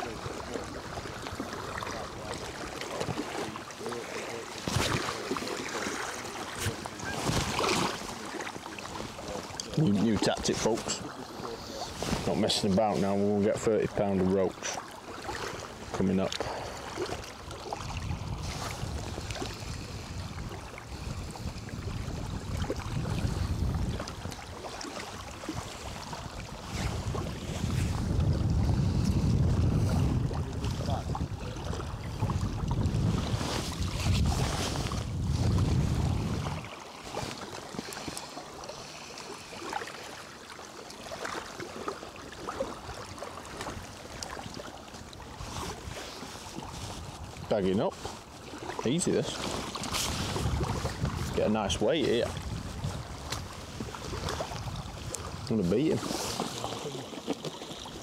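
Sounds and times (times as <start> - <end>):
small waves lapping: 0.0 - 58.0
wind: 0.0 - 58.0
wind buffeting microphone: 17.6 - 24.6, 25.4 - 36.8, 49.1 - 56.1.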